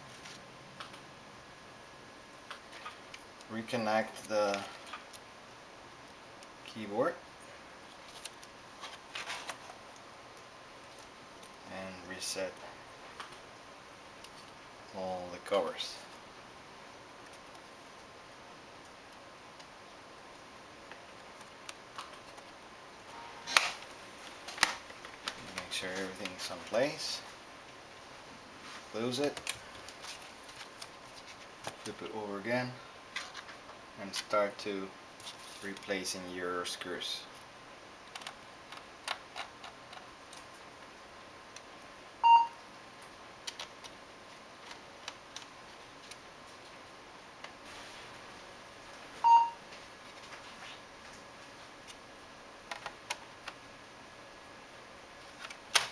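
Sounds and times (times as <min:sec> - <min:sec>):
short electronic beep: 0:23.1 - 0:23.6, 0:42.2 - 0:42.6, 0:49.2 - 0:49.6.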